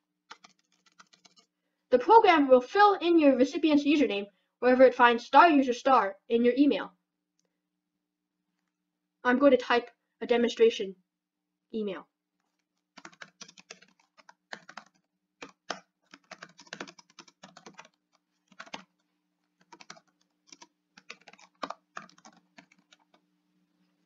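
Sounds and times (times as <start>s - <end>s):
typing on computer keyboard: 0.3s - 1.5s, 12.9s - 23.2s.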